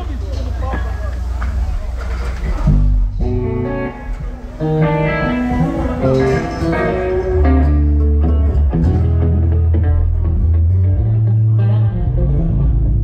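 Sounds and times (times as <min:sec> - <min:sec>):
sustained low bass notes: 0:00.0 - 0:13.0
guitar single notes: 0:02.6 - 0:13.0.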